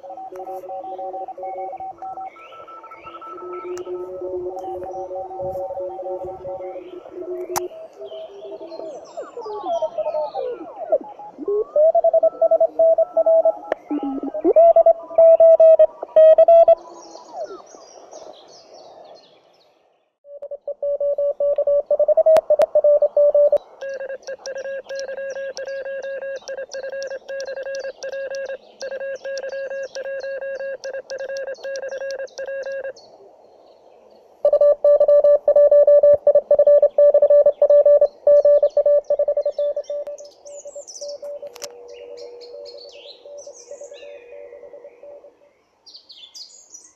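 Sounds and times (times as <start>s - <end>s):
morse code tones: 0.0s - 7.6s, 11.5s - 16.8s, 20.3s - 32.9s, 34.5s - 40.2s.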